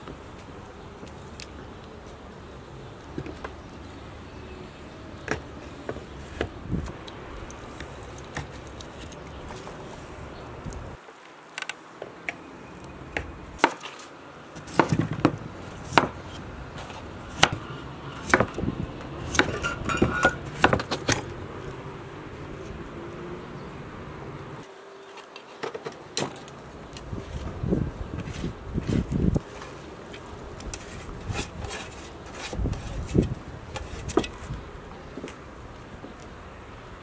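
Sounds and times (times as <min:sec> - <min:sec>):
knife chopping on wooden board: 0:14.6 - 0:16.2, 0:18.2 - 0:18.6, 0:19.3 - 0:21.2.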